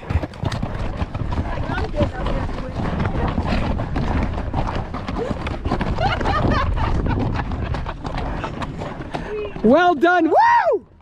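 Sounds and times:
horse hooves clopping: 0.0s - 11.0s.

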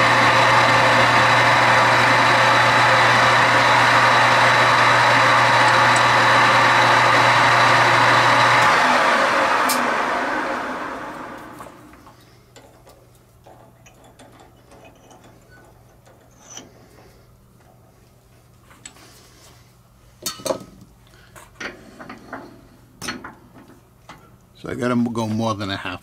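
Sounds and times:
metal lathe running down: 0.0s - 12.0s
metal tools clinking: 12.5s - 16.8s.

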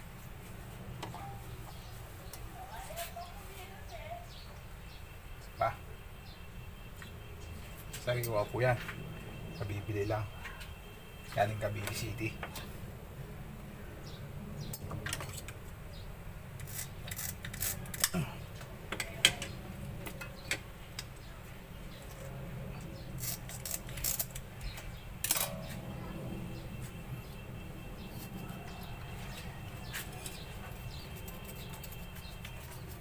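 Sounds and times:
low hum: 21.7s - 29.8s.

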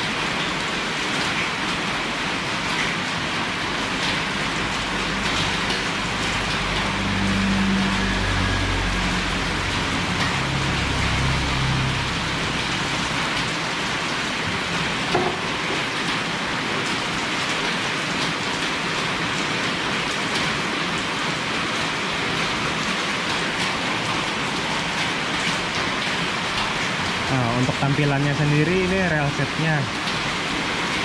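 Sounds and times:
rain-like hiss: 0.0s - 31.0s
low rumble: 5.5s - 15.0s.

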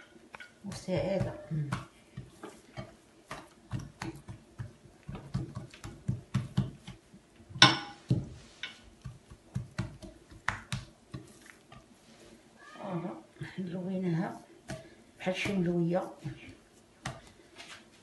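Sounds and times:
hands slapping dough: 0.0s - 11.9s, 14.6s - 18.0s.

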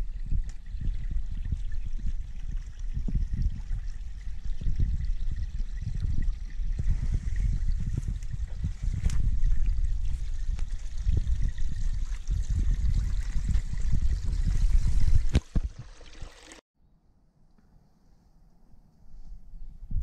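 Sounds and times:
water trickling onto stones: 15.0s - 16.6s.

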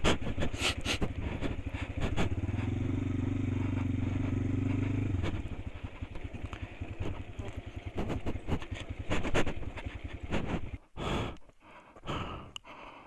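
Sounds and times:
motorcycle engine revving: 0.0s - 10.9s.

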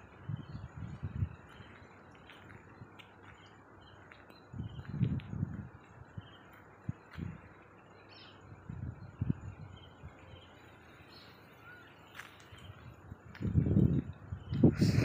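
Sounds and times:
wind rumble on microphone: 0.0s - 3.0s, 4.3s - 7.6s, 8.4s - 10.5s, 12.4s - 15.0s
faint outdoor hiss: 0.0s - 15.0s
small birds chirping: 0.0s - 15.0s.

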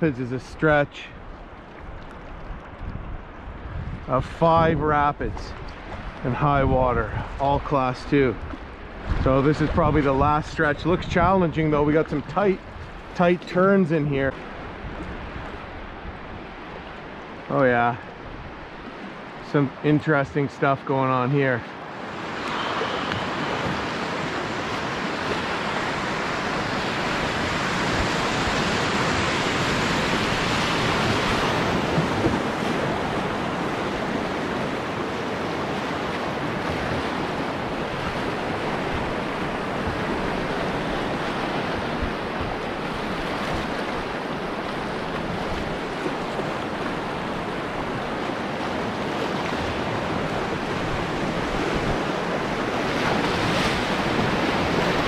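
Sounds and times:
whitewater rushing: 18.8s - 55.0s.

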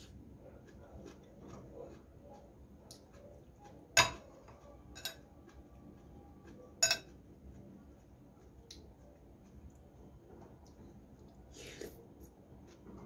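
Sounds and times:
metal spoon clinking on glass bowl: 4.9s - 5.2s, 6.8s - 7.2s.

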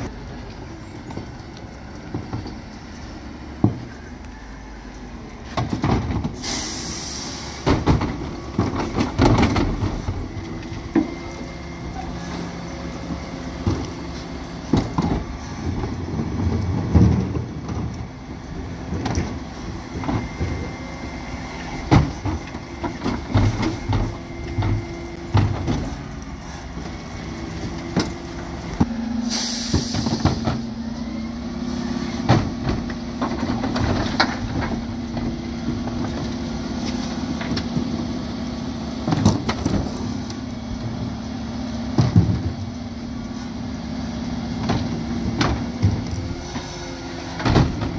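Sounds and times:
truck drone: 0.0s - 47.9s
air hiss: 6.4s - 7.6s, 29.2s - 30.4s.

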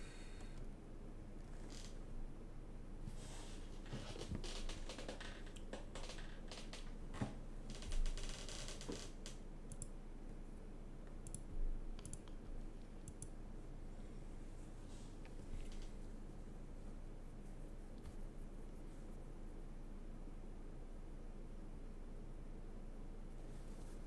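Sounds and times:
computer mouse clicks: 9.7s - 10.0s, 11.0s - 13.4s
keyboard keystrokes clicking: 11.2s - 13.3s.

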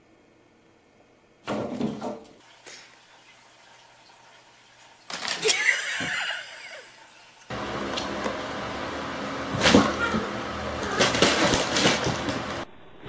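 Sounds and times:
low household hum: 0.0s - 13.0s.

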